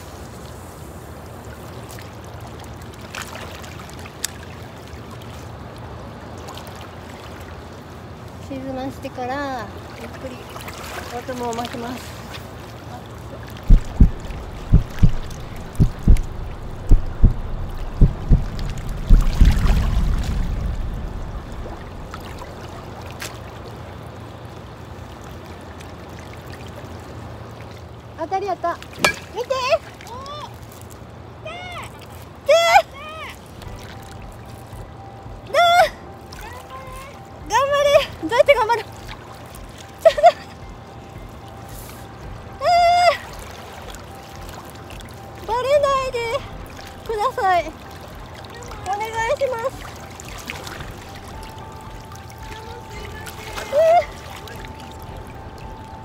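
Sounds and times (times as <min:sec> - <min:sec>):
water lapping on rocky shore: 0:00.0 - 0:24.4
shallow water lapping: 0:00.0 - 0:56.0
low steady rumble: 0:12.7 - 0:25.8, 0:33.0 - 0:56.0
low thumps: 0:13.7 - 0:22.6.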